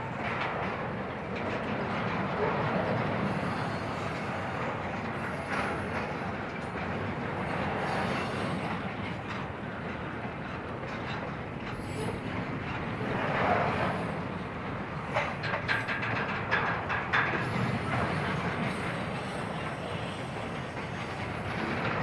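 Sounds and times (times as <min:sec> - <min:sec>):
freight train wheels on rails: 0:00.0 - 0:22.0.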